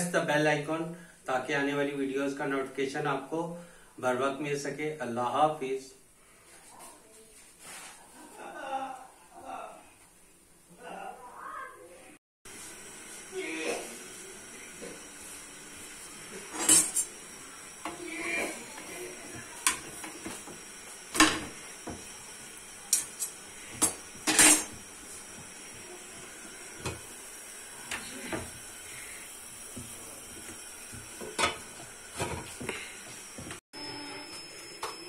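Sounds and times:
metal cookware clattering: 16.5s - 17.1s, 22.9s - 24.8s, 31.3s - 32.5s.

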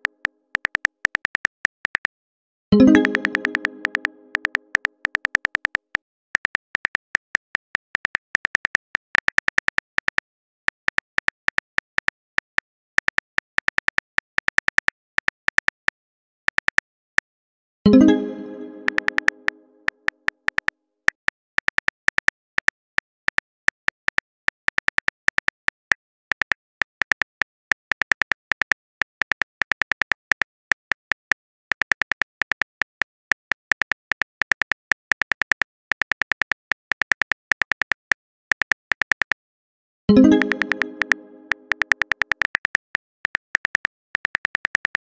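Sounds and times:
message tone: 2.8s - 4.6s, 17.9s - 19.6s, 40.1s - 42.0s
phone keyboard typing clicks: 2.8s - 15.9s, 18.0s - 39.4s, 40.1s - 45.0s.

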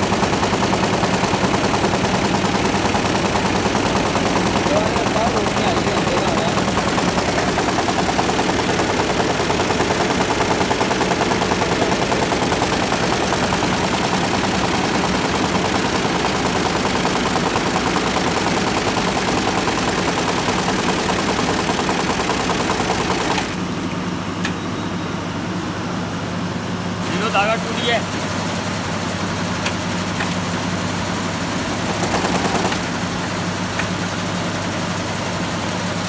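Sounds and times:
machine running hum: 0.0s - 17.3s
embroidery machine rattling: 0.0s - 23.6s, 31.7s - 33.0s.

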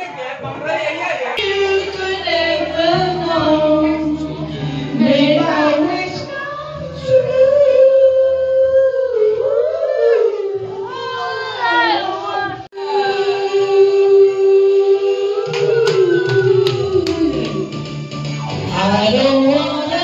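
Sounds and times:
song with singing and accompaniment: 1.4s - 20.0s.

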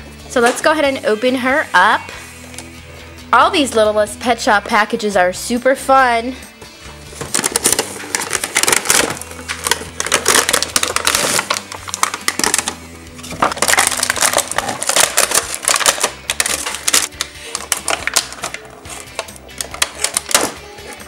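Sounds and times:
background music: 0.0s - 21.0s
plastic blister tray crinkling: 7.1s - 21.0s
cardboard box flap tearing: 7.3s - 12.6s.

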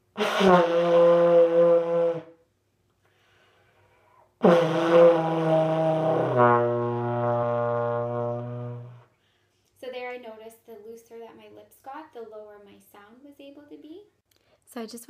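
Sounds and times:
trombone notes: 0.0s - 2.4s, 4.4s - 9.0s.

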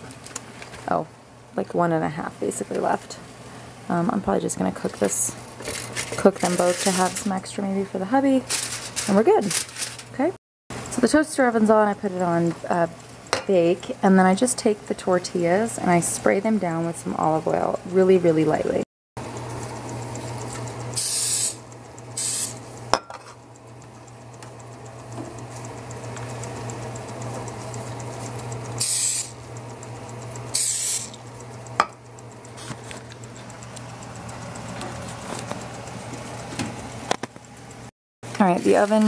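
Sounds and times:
aerosol spray hissing: 21.0s - 21.6s, 22.2s - 22.6s, 28.8s - 29.4s, 30.6s - 31.2s
sharp click: 30.1s - 35.8s.

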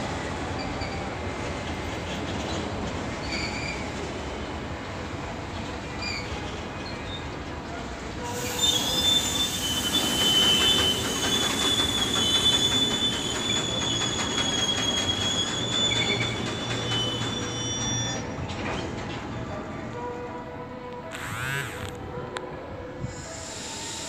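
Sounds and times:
freight train rumble: 0.0s - 21.1s
high-pitched metal squeal: 8.3s - 18.4s, 23.1s - 24.0s.

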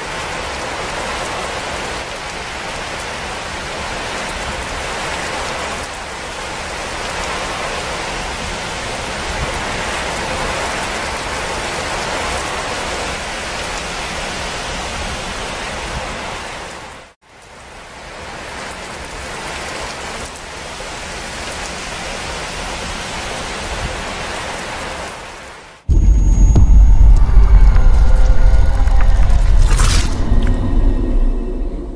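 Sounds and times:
steady rain: 0.0s - 31.8s
loud deep sound: 25.9s - 31.9s.

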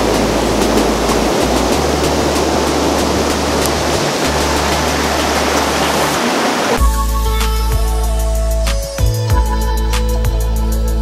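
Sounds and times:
low bass background music: 0.0s - 6.2s, 6.8s - 11.0s
river rushing through rapids: 0.0s - 6.8s.

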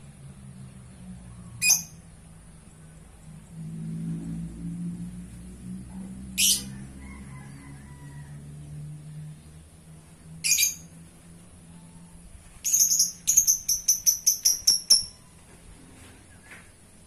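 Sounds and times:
lovebird shrill calls: 1.6s - 2.0s, 6.4s - 6.7s, 10.4s - 10.9s, 12.6s - 15.2s.

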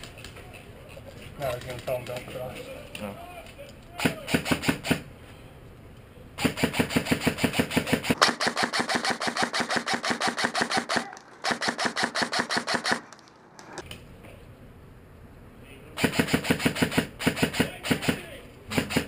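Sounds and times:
airsoft rifle automatic fire: 4.0s - 5.1s, 6.4s - 13.1s, 16.0s - 19.0s.

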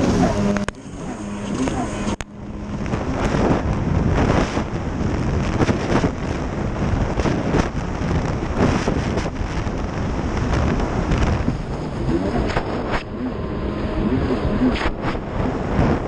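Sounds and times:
jet ski engine at speed: 0.0s - 16.0s
wind buffeting microphone: 0.0s - 16.0s
hull slapping on waves: 1.5s - 13.8s.

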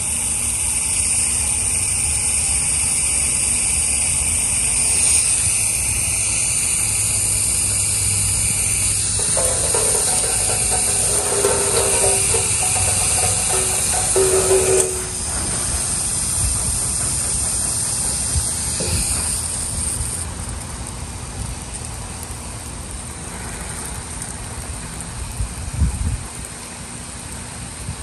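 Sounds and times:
dull knock: 9.2s - 15.4s.

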